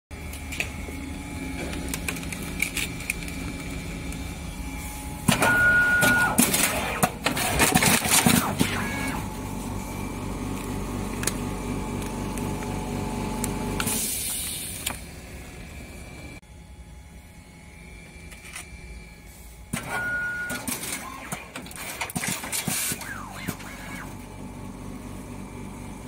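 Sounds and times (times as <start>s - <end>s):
wrapping machine motor hum: 0.2s - 26.0s
machine clatter and rapid clicks: 6.4s - 8.8s, 20.5s - 24.0s.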